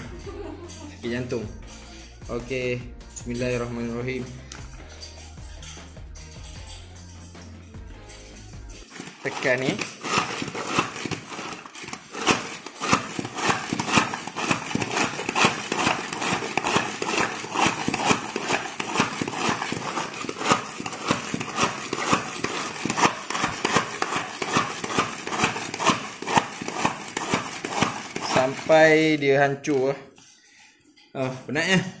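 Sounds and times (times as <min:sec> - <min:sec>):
food chopper plastic clacks: 0:08.8 - 0:29.7.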